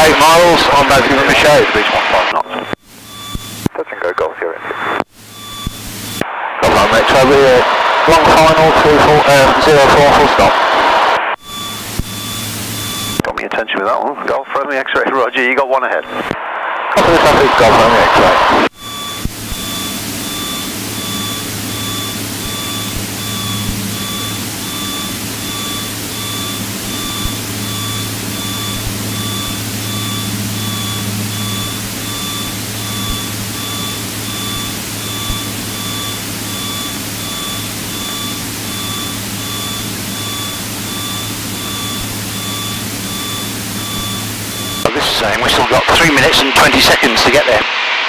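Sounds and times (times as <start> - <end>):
electronic beep pulsing: 0.0 - 10.5, 11.4 - 13.4, 17.0 - 47.4
piston engine droning: 18.8 - 44.9.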